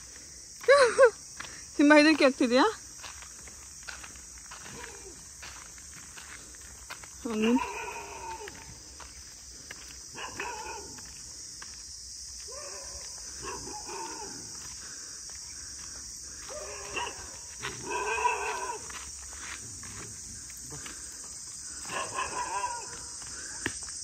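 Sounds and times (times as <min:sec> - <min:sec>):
high insect-like hiss: 0:00.0 - 0:24.0
dog barking: 0:07.4 - 0:08.4, 0:10.1 - 0:11.0, 0:12.5 - 0:14.5, 0:16.5 - 0:18.9, 0:21.9 - 0:23.1.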